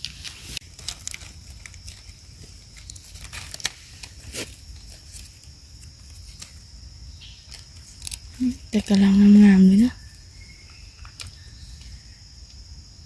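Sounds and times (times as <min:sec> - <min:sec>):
twigs snapping: 0:00.0 - 0:06.6, 0:07.3 - 0:08.5, 0:10.6 - 0:12.6
dry leaves crackling underfoot: 0:00.0 - 0:12.3
high insect drone: 0:00.0 - 0:13.0.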